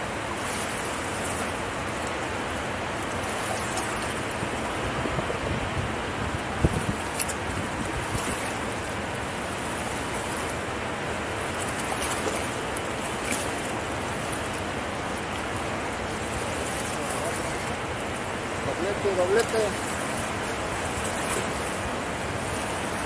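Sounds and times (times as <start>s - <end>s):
turbulent water rushing: 0.0s - 23.0s.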